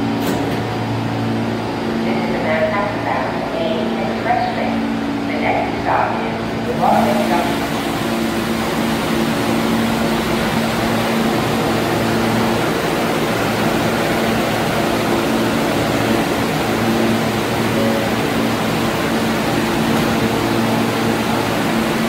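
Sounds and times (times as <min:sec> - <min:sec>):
train air-conditioning hum: 0:00.0 - 0:22.0
low held tones: 0:15.4 - 0:21.4.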